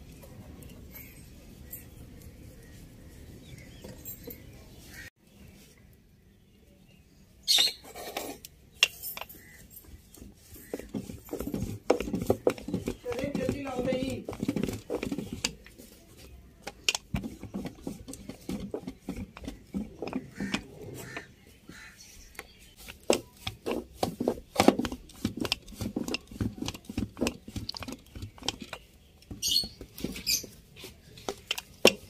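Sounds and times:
rolling pin knocking on dough: 0:10.4 - 0:15.6.

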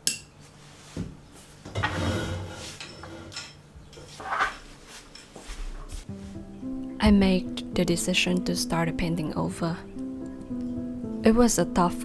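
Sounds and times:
objects clattering and rustling: 0:00.9 - 0:06.4.

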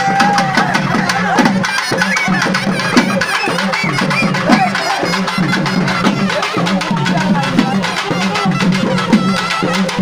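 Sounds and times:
crowd voices: 0:00.0 - 0:10.0
fast dense drumming: 0:00.0 - 0:10.0.

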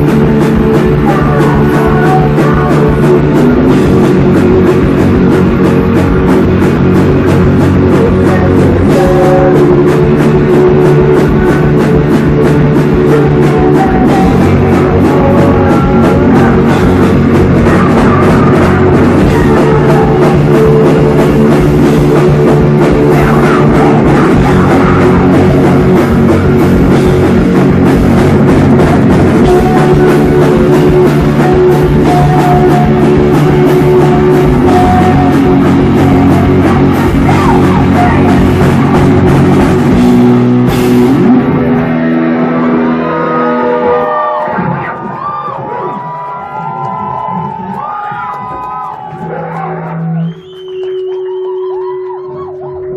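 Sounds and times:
electric guitars ringing: 0:00.0 - 0:46.0
drum kit: 0:00.0 - 0:52.9
rock band playing: 0:00.0 - 0:52.9.

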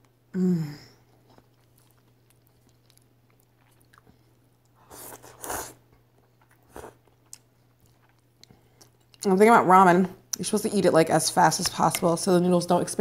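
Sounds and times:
faint chewing: 0:01.0 - 0:09.3
person slurping noodles: 0:04.8 - 0:05.8.

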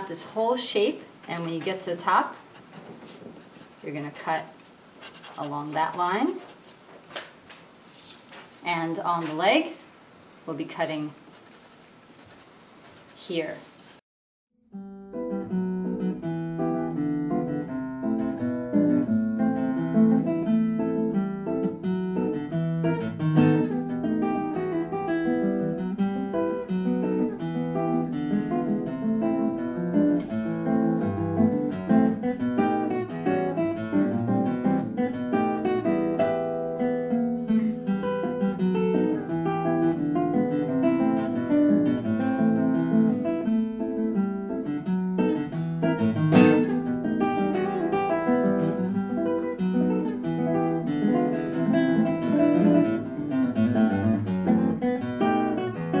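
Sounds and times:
acoustic guitar plucked notes: 0:14.7 - 0:56.0.

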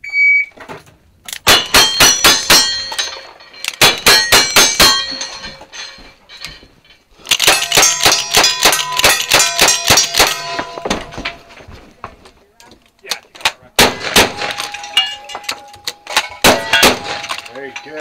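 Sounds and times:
rifle shots ringing steel: 0:01.5 - 0:05.5, 0:07.3 - 0:10.8, 0:13.8 - 0:18.0
revolver shots ringing steel: 0:13.8 - 0:18.0.

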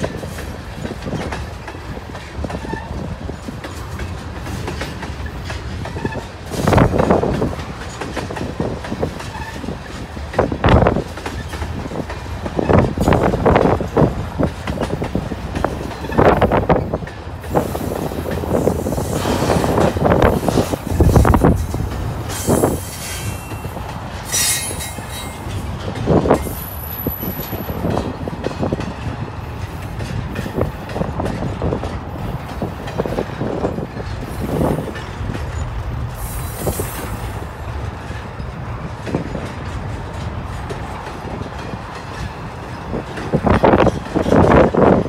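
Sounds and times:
railcar clunks and knocks: 0:00.0 - 0:45.0
steel wheels rumbling on rail: 0:00.0 - 0:45.0
high-pitched wheel squeals: 0:24.3 - 0:25.4.

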